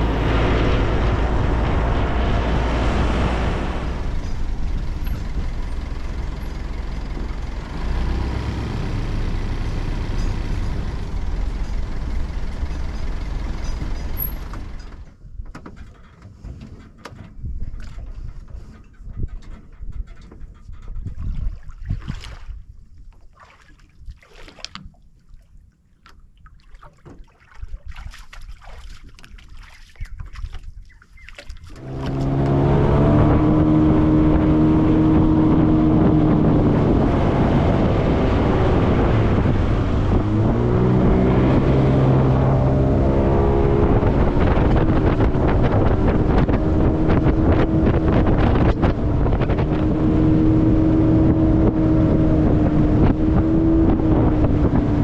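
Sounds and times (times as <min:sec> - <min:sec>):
water rushing: 0:00.0 - 0:13.5, 0:31.3 - 0:55.0
outboard motor running: 0:00.0 - 0:15.1, 0:31.2 - 0:55.0
wind: 0:00.0 - 0:55.0.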